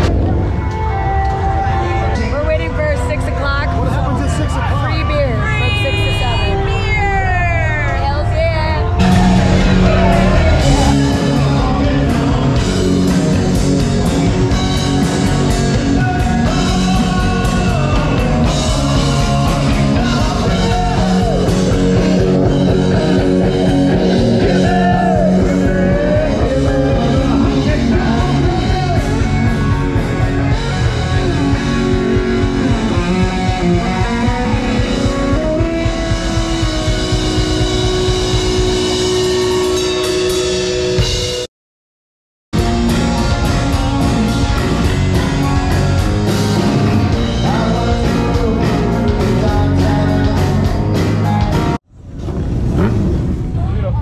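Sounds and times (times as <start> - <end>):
rock song with singing: 0.0 - 41.4, 42.6 - 51.8
guitar: 0.0 - 41.5, 42.6 - 51.8
steady drum beat: 4.2 - 41.5, 42.6 - 51.8.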